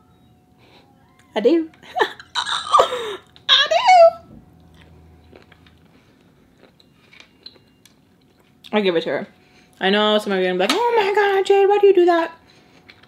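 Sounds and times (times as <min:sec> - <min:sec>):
woman exclaiming: 0:02.4 - 0:04.2
person chewing: 0:04.6 - 0:08.6.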